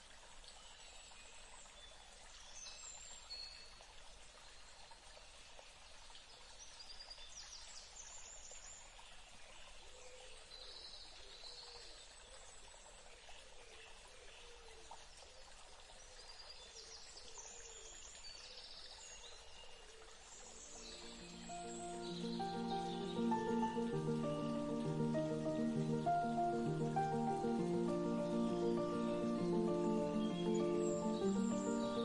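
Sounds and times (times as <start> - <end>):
steady background hiss: 19.6 - 32.0
robin song: 20.6 - 32.0.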